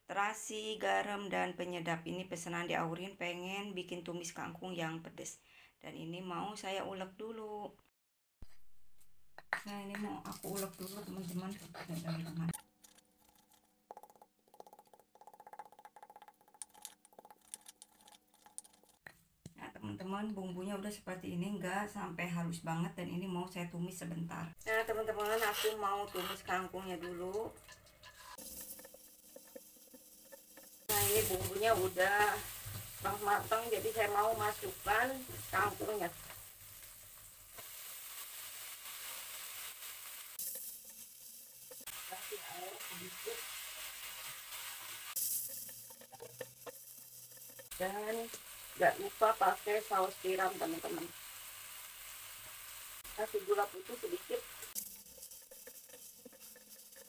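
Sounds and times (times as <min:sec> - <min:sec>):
frying sizzle in a wok: 0:09.7 - 0:12.6, 0:24.5 - 0:57.0.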